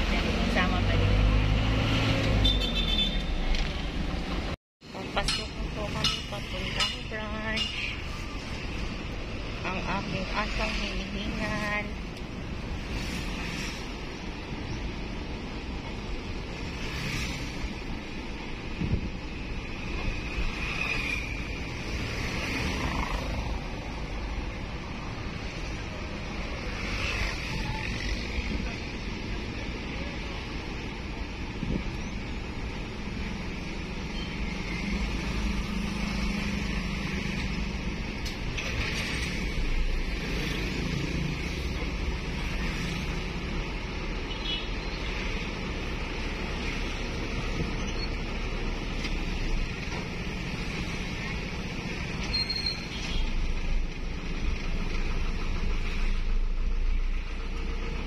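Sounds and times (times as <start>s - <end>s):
vehicle engine and road noise: 0.0s - 58.0s.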